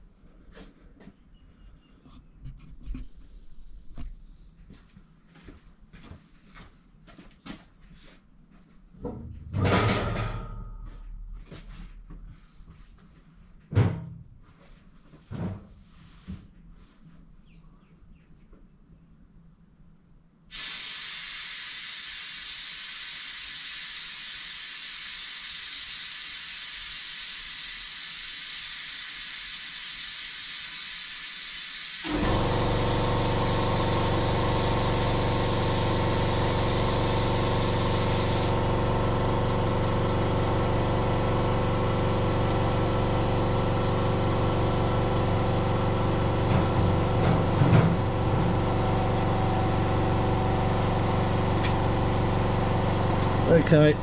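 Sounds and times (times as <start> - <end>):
compressed air hissing: 20.5 - 39.0
air compressor motor humming: 20.5 - 54.0.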